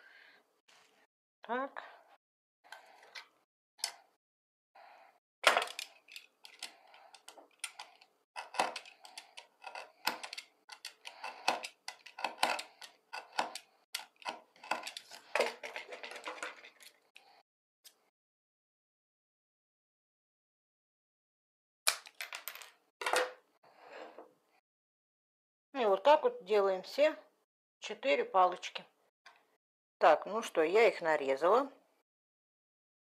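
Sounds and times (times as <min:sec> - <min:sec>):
knife cutting wooden sticks: 0:05.5 - 0:16.2.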